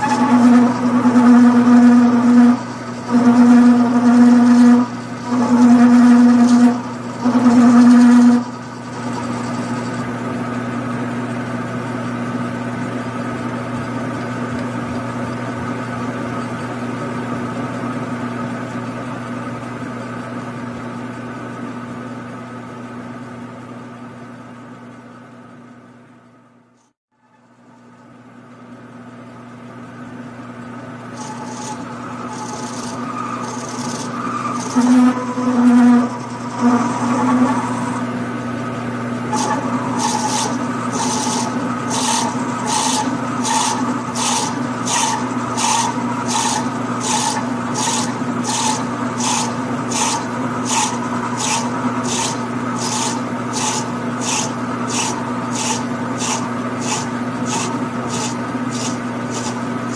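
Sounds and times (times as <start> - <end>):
cutting tool scraping metal: 0.0 - 10.1, 31.2 - 38.1, 39.3 - 59.9
metal lathe humming: 0.0 - 17.8, 30.9 - 59.9.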